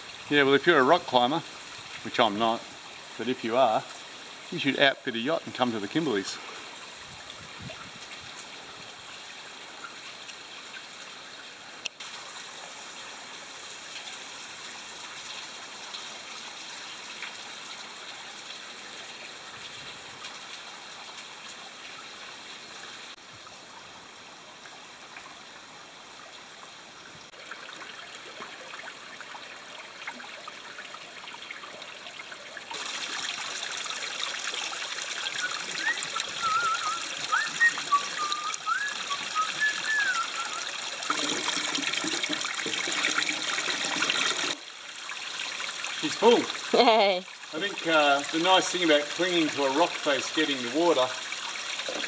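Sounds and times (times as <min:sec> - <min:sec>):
water trickling off rock: 0:27.4 - 0:52.0.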